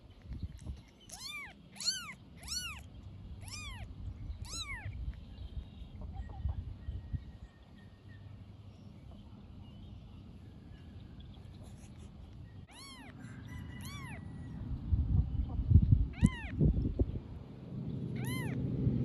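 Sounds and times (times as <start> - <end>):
newborn kittens mewing: 1.0 - 5.0, 12.7 - 13.2, 13.8 - 14.2, 16.2 - 16.6, 18.2 - 18.6
low rumbling noise: 14.5 - 19.0.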